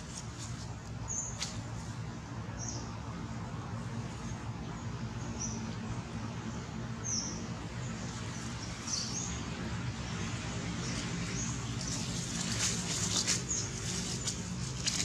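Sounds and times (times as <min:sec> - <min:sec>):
dry leaves rustling and crackling: 0:00.0 - 0:02.0, 0:10.0 - 0:15.0
steady low hum: 0:00.0 - 0:15.0.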